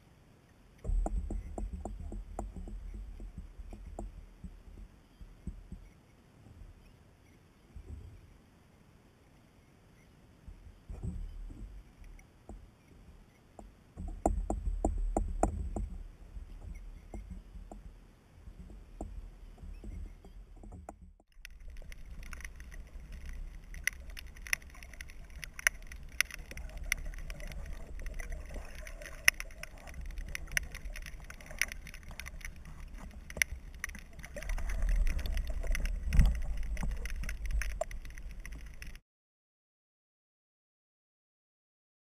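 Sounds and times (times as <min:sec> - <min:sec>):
fine crackling and clicking: 0:00.8 - 0:08.1, 0:10.5 - 0:39.0
muffled underwater sound: 0:14.0 - 0:39.0
water sloshing and splashing: 0:14.0 - 0:39.0.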